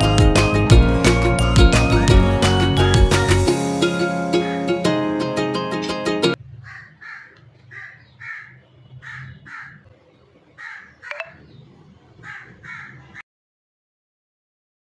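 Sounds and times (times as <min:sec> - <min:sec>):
short bird calls: 0:06.6 - 0:09.9.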